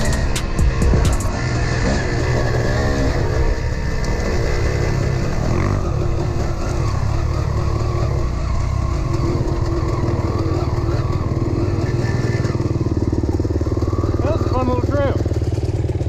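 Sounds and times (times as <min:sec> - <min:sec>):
dirt bike engine running: 0:00.0 - 0:16.0.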